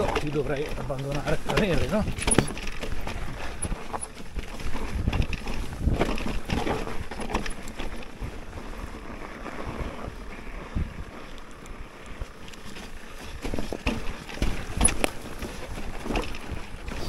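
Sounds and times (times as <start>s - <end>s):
wind buffeting microphone: 0.0s - 11.3s
bike knocking and rattling: 0.0s - 17.0s.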